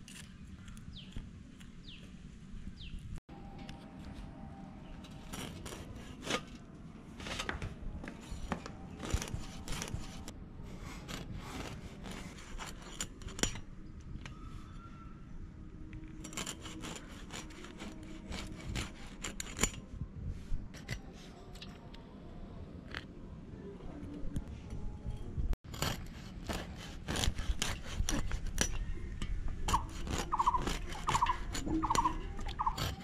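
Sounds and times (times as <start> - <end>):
blade scraping fish scales: 5.1 - 6.6, 8.9 - 13.7, 16.1 - 19.8, 25.7 - 28.9, 29.6 - 33.0.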